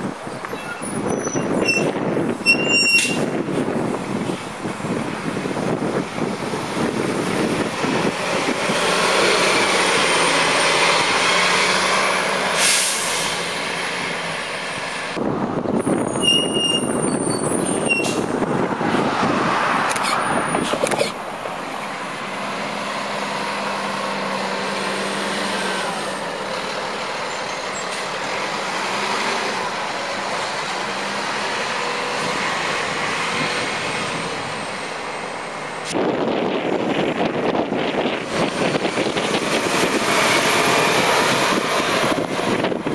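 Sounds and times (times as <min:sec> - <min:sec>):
buses pulling away: 0:00.0 - 0:42.9
air brake hiss: 0:12.6 - 0:13.4.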